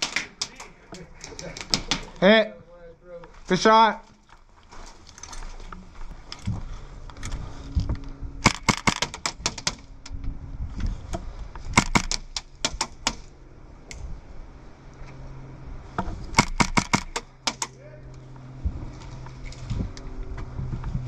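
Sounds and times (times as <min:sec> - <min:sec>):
airsoft gunfire bursts: 0:08.4 - 0:09.4.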